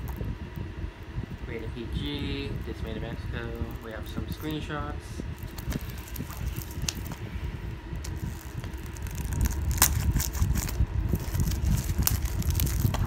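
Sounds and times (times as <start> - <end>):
low handling rumble: 0.0 - 13.0
plastic wrap crinkling: 1.7 - 13.0.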